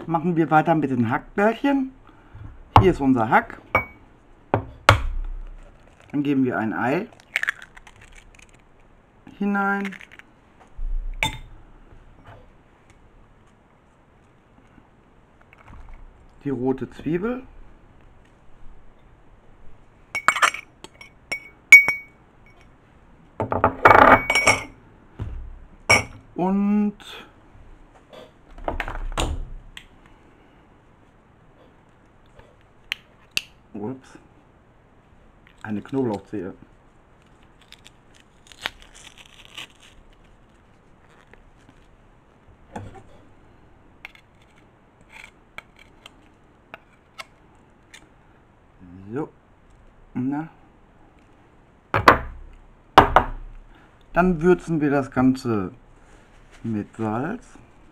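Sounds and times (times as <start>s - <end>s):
ceramic dishes clinking: 3.8s - 4.0s, 20.2s - 22.2s, 24.0s - 24.8s.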